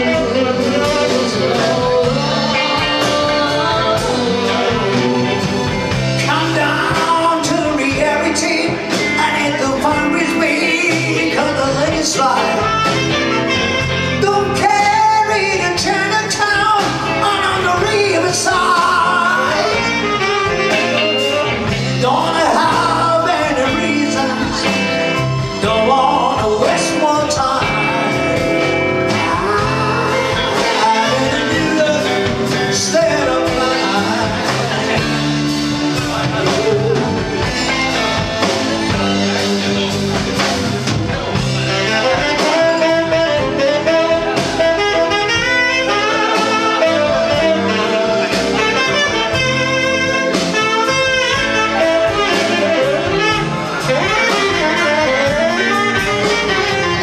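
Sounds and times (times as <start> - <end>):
woman singing: 0.0 - 12.9, 14.2 - 20.8, 29.1 - 35.1
live band playing ballad: 0.0 - 57.0.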